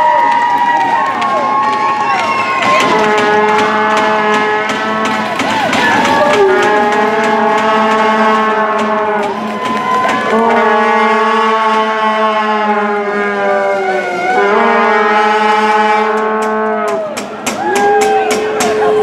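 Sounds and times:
arena goal horn blasts: 2.6s - 17.2s.

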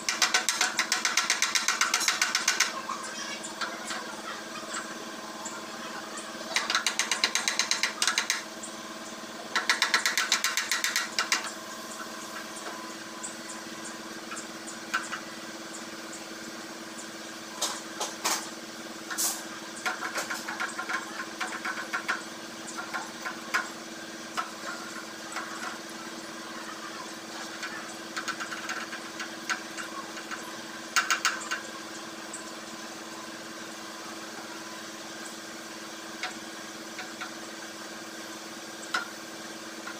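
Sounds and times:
steady low hum: 0.0s - 39.9s
hammer tapping on metal: 9.5s - 11.5s.

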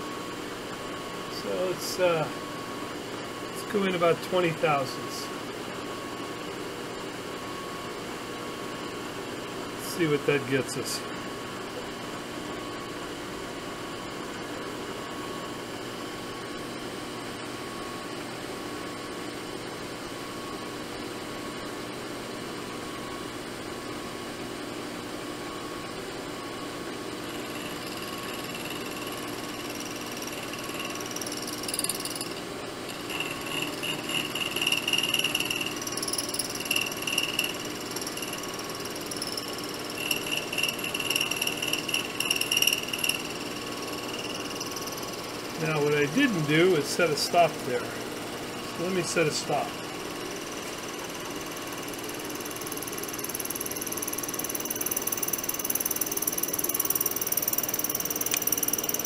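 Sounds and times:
milling machine spindle humming: 0.0s - 8.0s, 25.8s - 59.0s
end mill cutting metal whine: 27.2s - 47.8s.

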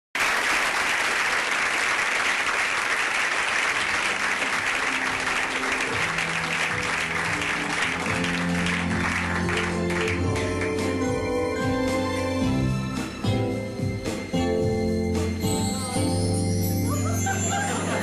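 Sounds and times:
audience applauding: 0.2s - 11.3s
music: 3.8s - 18.0s.

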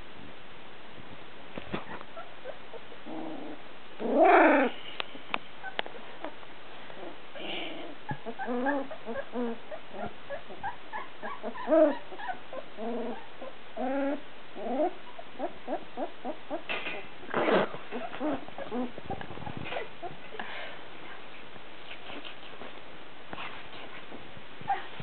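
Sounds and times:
puppy whining and yipping: 1.8s - 4.7s, 8.0s - 16.7s, 17.9s - 20.2s.

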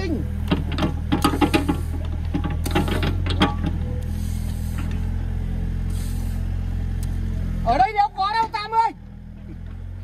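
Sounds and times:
diesel engine running: 0.0s - 10.0s
sand sliding hiss: 4.0s - 6.6s.

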